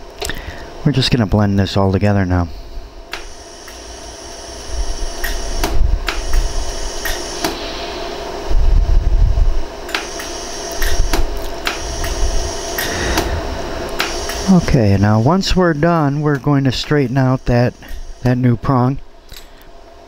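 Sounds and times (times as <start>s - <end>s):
steady hum: 0.0s - 20.0s
laser welder snapping: 3.1s - 7.6s, 9.9s - 14.6s.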